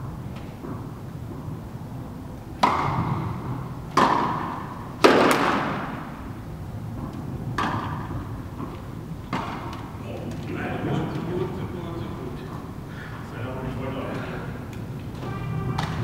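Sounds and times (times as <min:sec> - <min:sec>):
tennis ball bouncing on court: 0:02.6 - 0:06.1, 0:06.9 - 0:09.9, 0:15.8 - 0:16.0
tennis ball struck by rackets: 0:02.6 - 0:06.3, 0:07.0 - 0:09.9.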